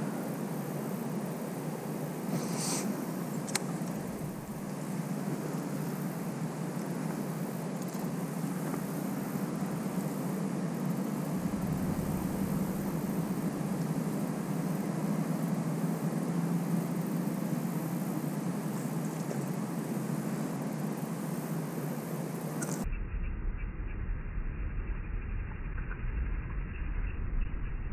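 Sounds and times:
background noise: 0.0s - 25.3s
low mechanical drone: 3.0s - 27.9s
low rumble: 3.8s - 4.8s, 11.1s - 15.5s.

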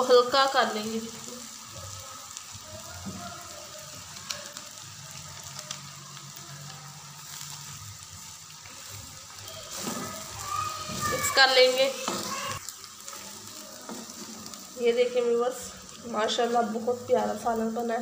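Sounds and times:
curry sizzling in oil: 0.0s - 18.0s
small crackles: 0.8s - 18.0s.

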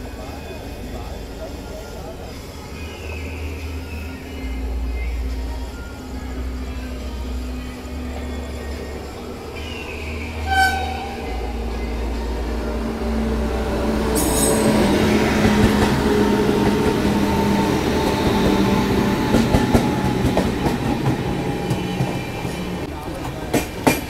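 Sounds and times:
electric locomotive hum: 0.0s - 24.0s
train wheels clattering: 8.4s - 24.0s
brief high tone: 10.0s - 12.8s.

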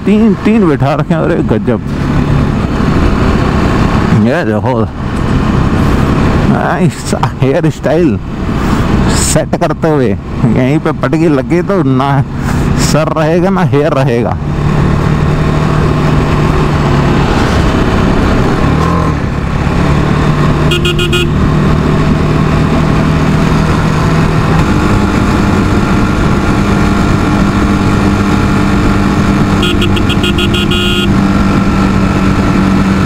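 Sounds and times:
motorcycle engine running: 14.4s - 33.0s
horn beeping in short pulses: 20.7s - 21.3s, 29.6s - 31.1s.

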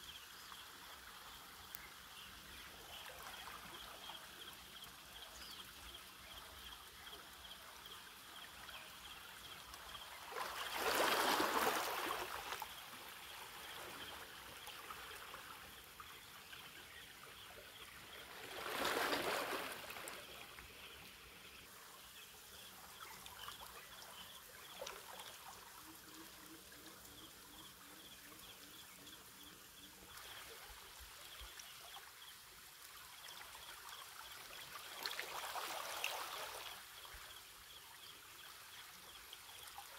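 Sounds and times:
small waves lapping against rocks: 9.8s - 15.9s, 18.0s - 20.7s.

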